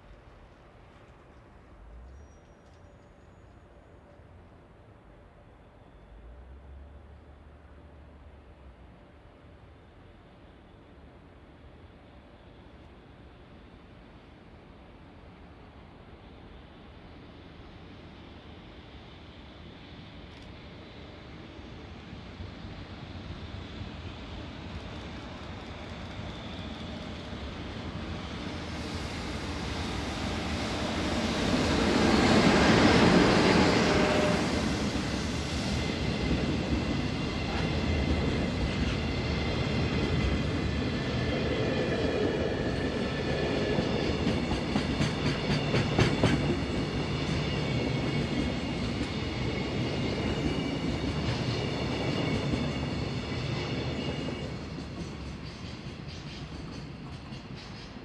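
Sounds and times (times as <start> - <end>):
electric locomotive passing: 0.0 - 58.0
train wheels clattering: 43.8 - 58.0.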